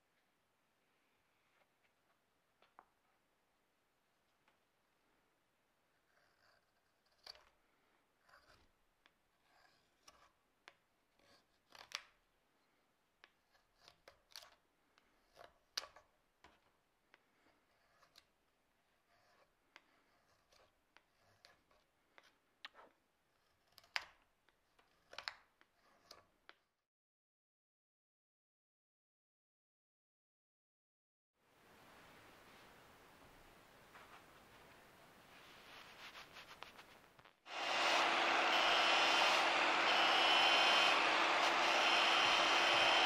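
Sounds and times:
faint knife scraping: 8.2s - 10.4s, 18.9s - 21.9s, 35.3s - 43.0s
knife cutting wood: 37.5s - 43.0s.

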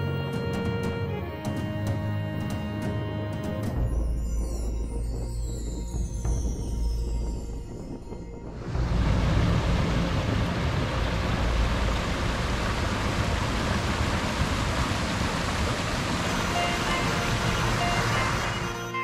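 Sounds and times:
stream rushing over rocks: 8.6s - 19.0s
faint music: 15.2s - 19.0s.

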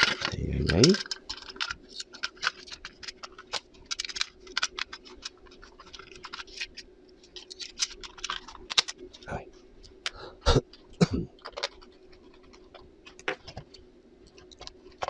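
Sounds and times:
plastic case clicking together: 0.0s - 9.0s.

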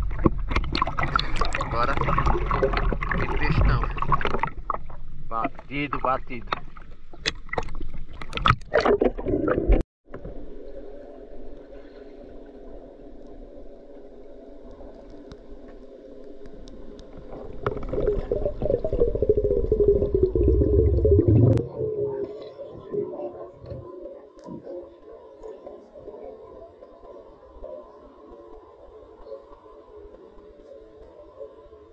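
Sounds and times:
water splashing: 0.0s - 9.8s, 16.2s - 23.0s
muffled underwater hum: 10.1s - 31.9s.

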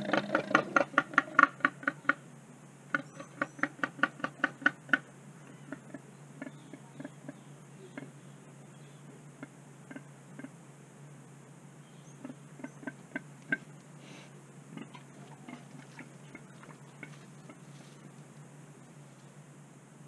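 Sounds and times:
faint steady hum: 0.0s - 20.0s
animal moving over dry leaves: 15.0s - 19.4s.

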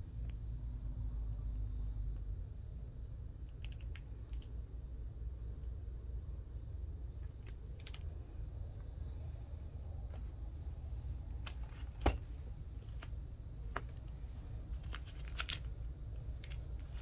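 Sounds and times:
low steady rumble: 0.0s - 17.0s.

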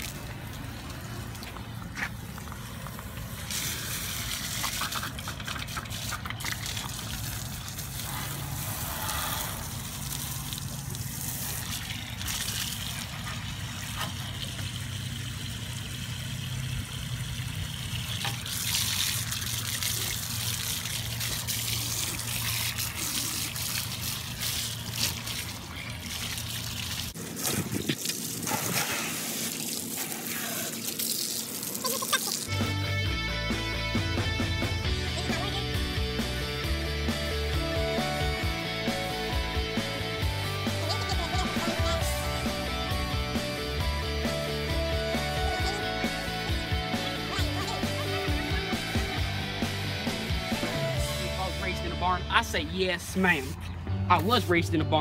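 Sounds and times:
water squirting out: 0.0s - 32.7s
water trickling into metal pole: 9.6s - 27.2s.

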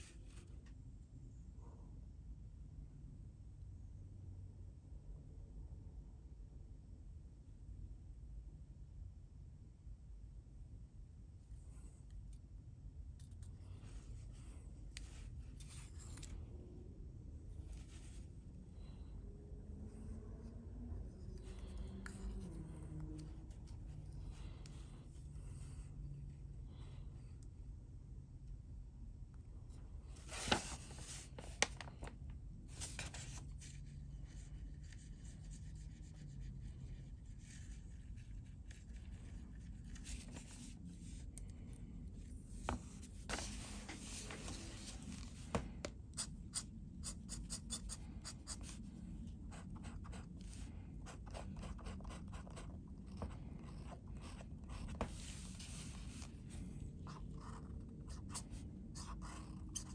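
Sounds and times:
pen nib scratching on paper: 46.2s - 48.8s, 49.5s - 55.0s, 57.0s - 59.9s.

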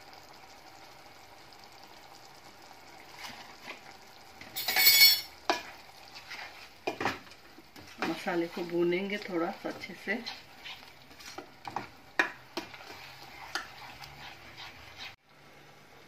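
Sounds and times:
faint steady sizzle: 0.0s - 16.0s
spatula scraping pot: 3.1s - 15.2s.

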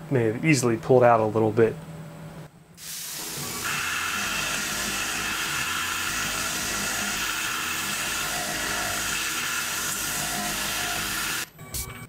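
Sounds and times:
coolant mist hiss: 2.8s - 8.2s
mill spindle whine: 3.3s - 11.6s.

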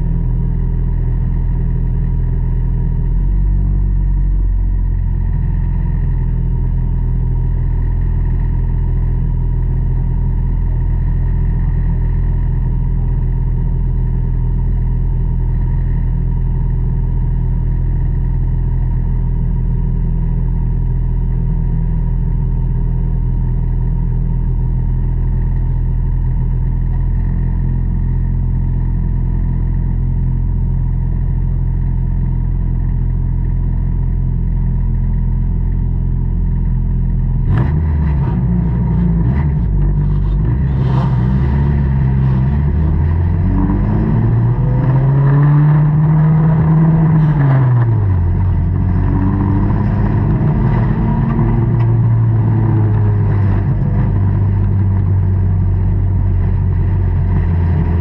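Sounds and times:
race car engine accelerating: 37.4s - 58.0s.

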